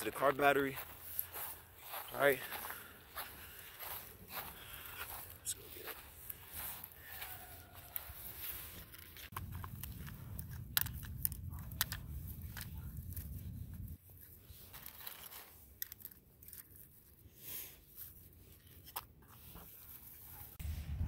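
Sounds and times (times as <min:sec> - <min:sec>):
crinkling: 0:05.6 - 0:20.6
low rumble: 0:20.6 - 0:21.0.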